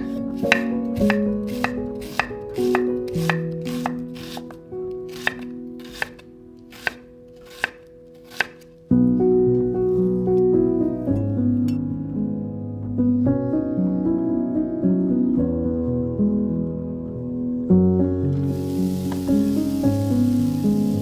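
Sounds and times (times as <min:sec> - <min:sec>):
knife chopping on wooden board: 0:00.0 - 0:08.7
soft background music: 0:00.0 - 0:21.0.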